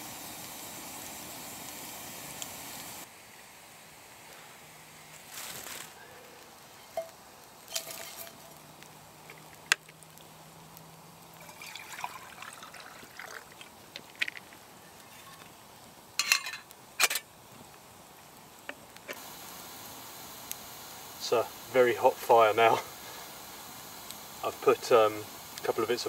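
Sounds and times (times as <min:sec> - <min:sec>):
burning logs popping: 0:00.0 - 0:03.1, 0:04.2 - 0:26.0
campfire crackling: 0:00.0 - 0:26.0
faint hiss: 0:00.0 - 0:26.0.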